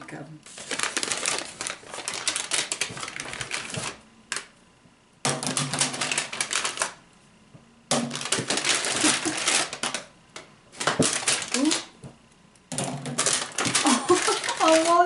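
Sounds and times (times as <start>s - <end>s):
paper bag crinkling: 0.5s - 4.5s, 5.4s - 7.0s, 8.1s - 10.1s, 10.8s - 11.9s, 13.1s - 15.0s
plastic eggs clacking: 12.7s - 15.0s.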